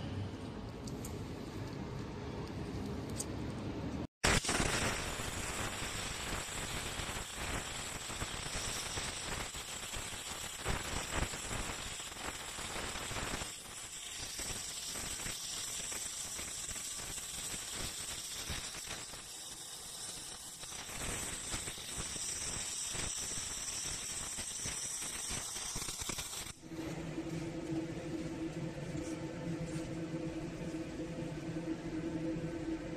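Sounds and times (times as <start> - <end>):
welding arc crackling: 4.2 - 26.8.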